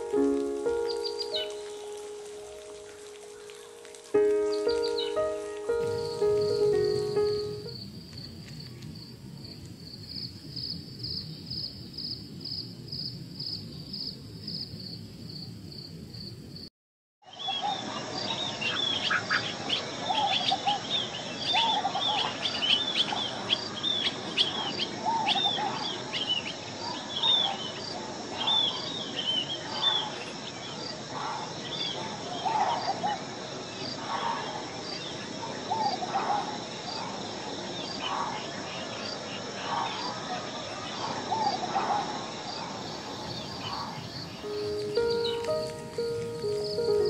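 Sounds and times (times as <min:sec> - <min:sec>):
lower warbled bird notes: 0:00.0 - 0:07.9, 0:44.4 - 0:47.0.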